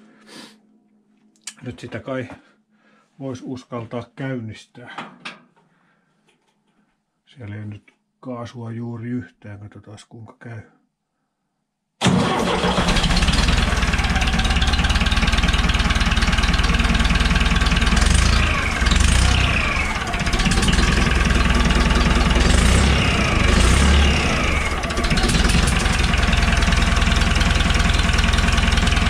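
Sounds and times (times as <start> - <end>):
tractor diesel engine idling: 12.0 - 29.0
engine revs rising: 17.9 - 26.5.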